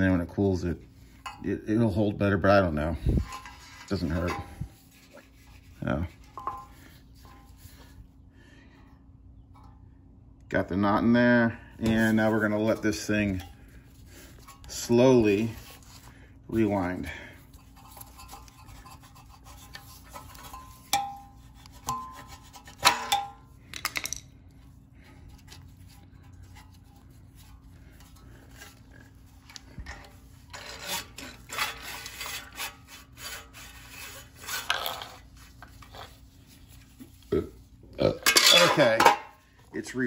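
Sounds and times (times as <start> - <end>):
starter rope rasping: 11.9 - 23.1, 25.0 - 37.4.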